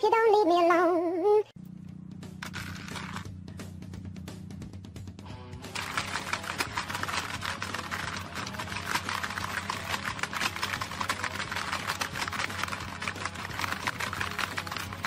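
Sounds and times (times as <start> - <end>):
rapid plastic clacking of toy levers: 5.8 - 15.0.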